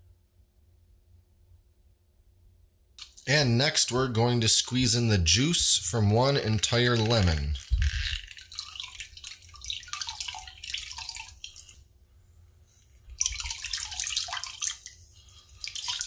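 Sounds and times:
juice dripping into liquid: 6.0 - 11.8, 12.8 - 16.0.

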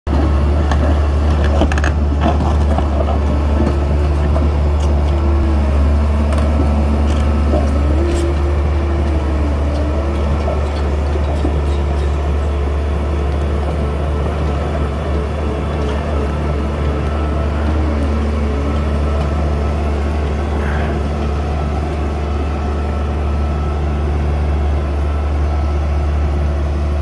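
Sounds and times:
excavator diesel engine running: 0.1 - 27.0.

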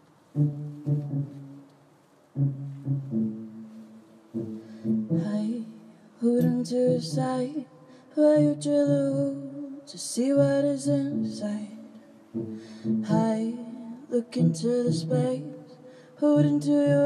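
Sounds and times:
woman singing: 5.1 - 12.0, 13.0 - 17.0.

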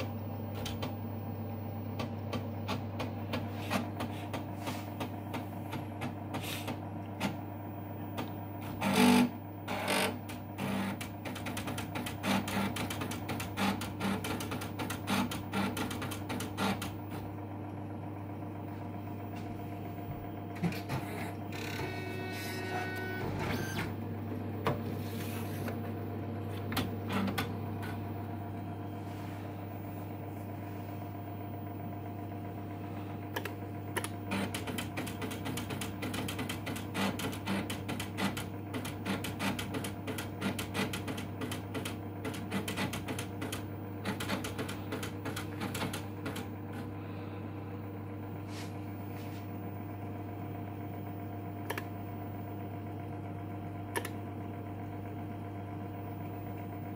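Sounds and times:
rapid mechanical clicking: 0.0 - 17.4, 33.3 - 46.9
word processor humming: 0.0 - 56.9.

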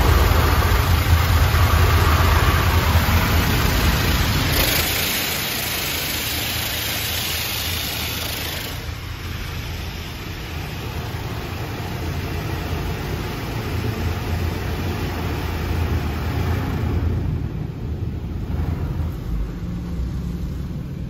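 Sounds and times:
steady low rumble: 0.0 - 4.6, 8.9 - 21.0
water spraying hiss: 0.0 - 15.6.

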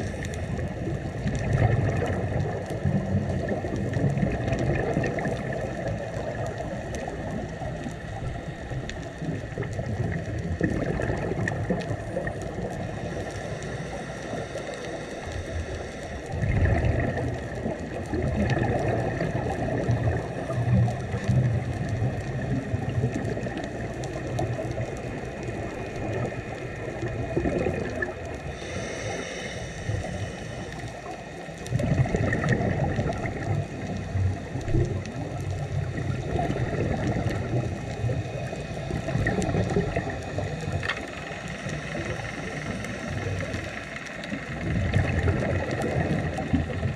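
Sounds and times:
bubbles gurgling underwater: 0.0 - 13.7, 15.2 - 29.2, 29.8 - 46.9
regulator hiss: 11.9 - 16.5, 28.0 - 31.6, 37.4 - 44.7.

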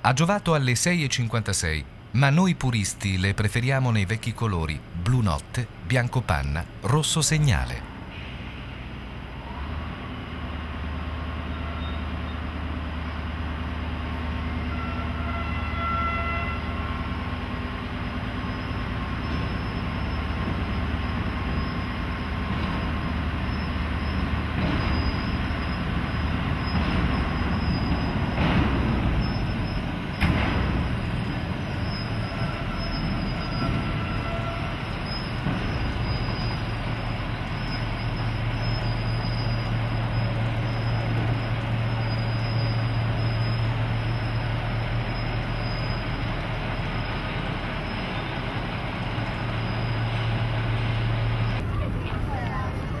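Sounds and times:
diesel engine hum: 0.0 - 53.0
wheels rumbling and squealing on rails: 6.6 - 53.0
wheels knocking over rail joints: 22.3 - 44.2.

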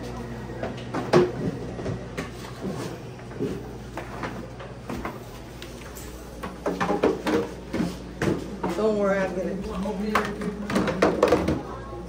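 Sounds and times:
faint voices: 8.6 - 12.0
trays and tableware clattering: 10.1 - 11.8.

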